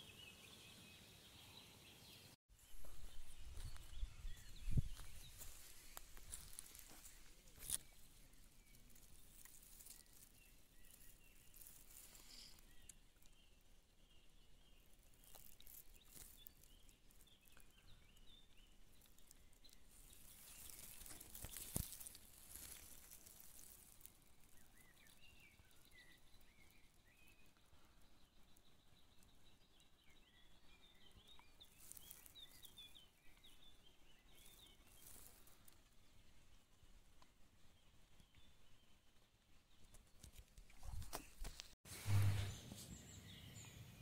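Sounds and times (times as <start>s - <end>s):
small birds chirping: 0.0s - 44.0s
brief rustle: 39.9s - 43.1s.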